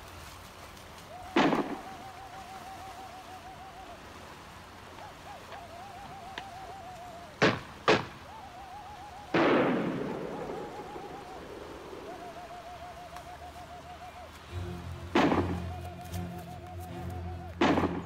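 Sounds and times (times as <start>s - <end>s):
held wavering musical note: 9.9s - 18.0s
musket shots: 17.6s - 18.0s.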